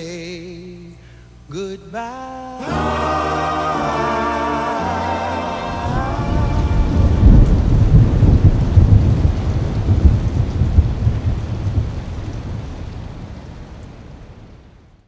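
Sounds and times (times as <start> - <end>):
steady rain: 2.6 - 15.0
rolling thunder: 5.7 - 14.9.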